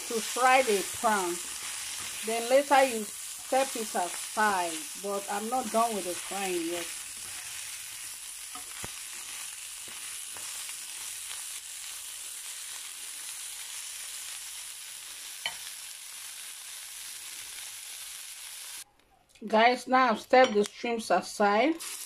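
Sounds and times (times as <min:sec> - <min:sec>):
shrimp sizzling in a pan: 0:00.0 - 0:18.9, 0:21.7 - 0:22.0
spatula scraping a pan: 0:00.2 - 0:11.4.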